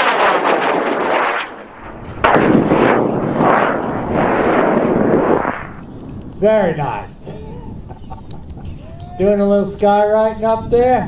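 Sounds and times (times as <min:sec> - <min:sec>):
rocket motor rushing burn: 0:00.0 - 0:06.4
loud crackling rocket burn: 0:00.0 - 0:08.6.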